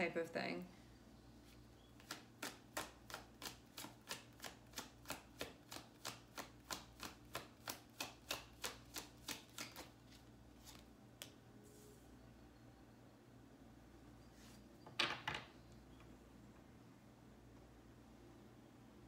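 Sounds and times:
cards being shuffled: 0:02.0 - 0:11.4.

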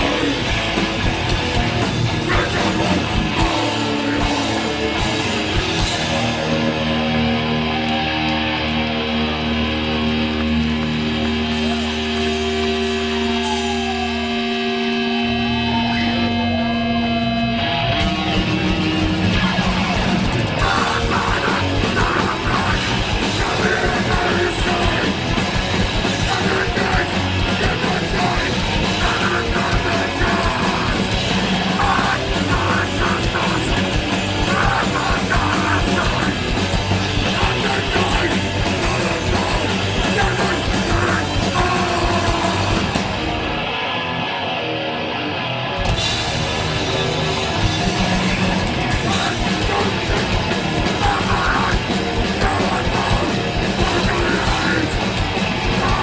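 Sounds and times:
drums crashing in: 0:00.0 - 0:06.6, 0:18.0 - 0:43.6, 0:45.8 - 0:56.0
distorted guitars and bass: 0:00.0 - 0:56.0
guitar feedback tones: 0:00.0 - 0:56.0.

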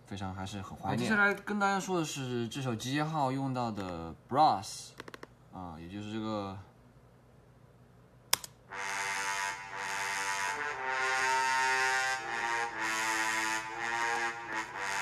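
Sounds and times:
brass ensemble slow melody: 0:08.7 - 0:15.0.

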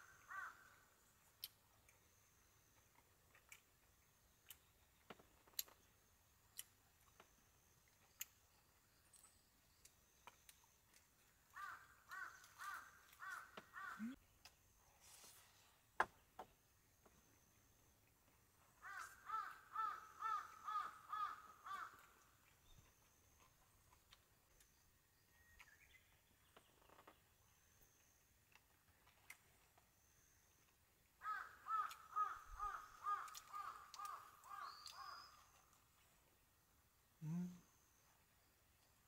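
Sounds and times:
faint bird calling: 0:11.5 - 0:14.2, 0:18.8 - 0:22.2, 0:31.2 - 0:35.6.

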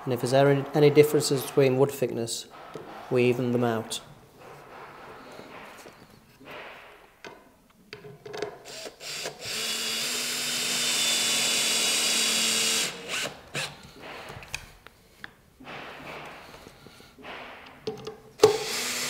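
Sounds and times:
cordless drill driving screw: 0:08.7 - 0:13.8, 0:18.4 - 0:19.0.

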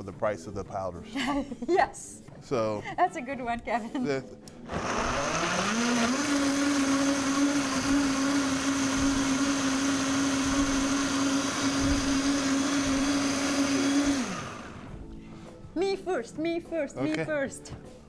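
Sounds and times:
blender motor whining: 0:04.7 - 0:15.0.

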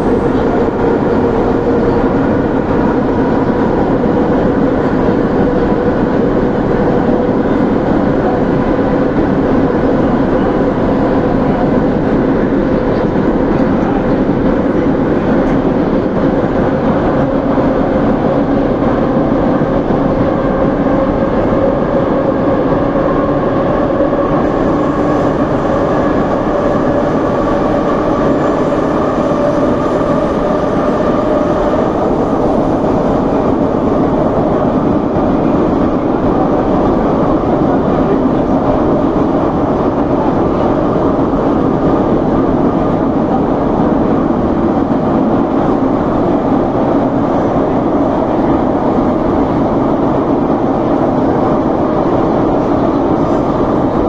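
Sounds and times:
metro train rumble: 0:00.0 - 0:54.0.

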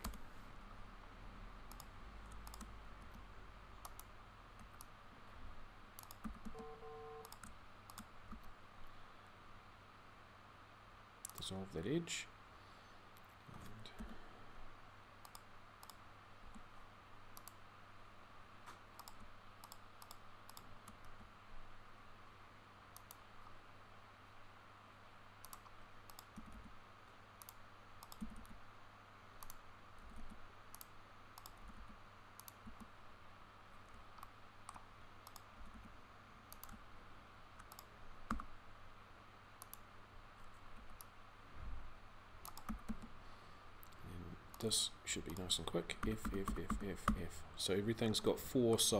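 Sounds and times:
computer mouse clicks: 0:00.0 - 0:00.2, 0:01.7 - 0:03.2, 0:03.8 - 0:04.9, 0:06.0 - 0:06.6, 0:07.2 - 0:08.6, 0:11.2 - 0:11.5, 0:15.2 - 0:16.7, 0:17.3 - 0:17.6, 0:18.7 - 0:21.3, 0:22.9 - 0:23.5, 0:25.4 - 0:26.8, 0:27.4 - 0:28.6, 0:29.4 - 0:32.9, 0:33.8 - 0:35.9, 0:36.5 - 0:36.8, 0:37.6 - 0:38.5, 0:39.6 - 0:39.9, 0:42.4 - 0:43.2, 0:43.8 - 0:47.2.

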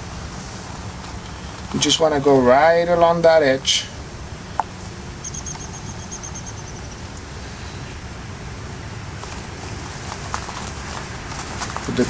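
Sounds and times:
distant traffic rumble: 0:00.0 - 0:12.0
high chirps: 0:04.3 - 0:07.3.

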